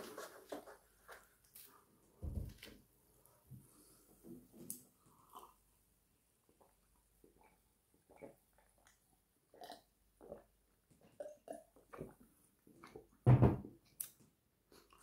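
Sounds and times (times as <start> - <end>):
man gulping a drink: 6.6 - 13.2.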